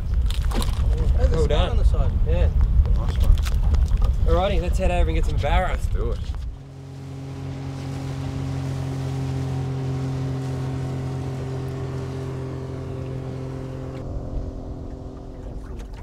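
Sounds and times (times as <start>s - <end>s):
water rushing past hull: 5.4s - 16.0s
outboard motor humming: 6.0s - 16.0s.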